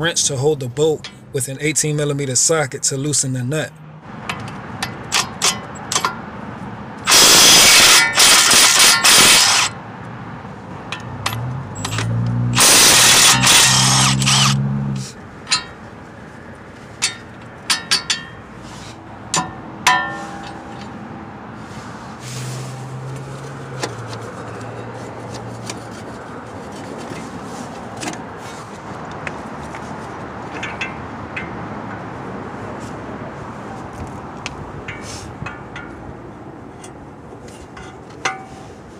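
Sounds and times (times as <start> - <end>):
impact wrench hammering: 4.2 - 6.2, 7.0 - 9.8, 11.0 - 15.8, 17.0 - 18.4, 19.3 - 21.0.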